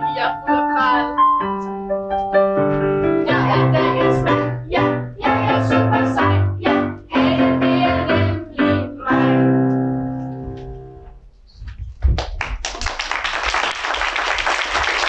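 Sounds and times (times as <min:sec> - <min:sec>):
audience applauding: 0:12.2 - 0:15.0.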